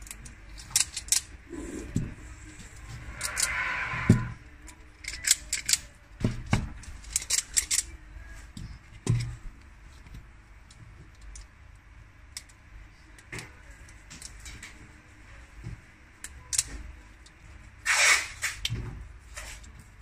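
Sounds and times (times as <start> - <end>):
pliers clicking and clacking: 7.0 - 7.9.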